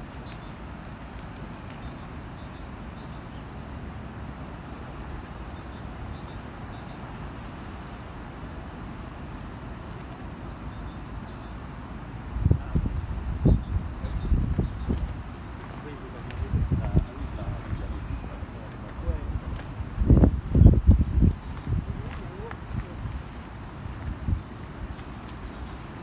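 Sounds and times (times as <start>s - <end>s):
rushing outdoor background noise: 0.0s - 26.0s
small bird chirping: 24.7s - 25.8s.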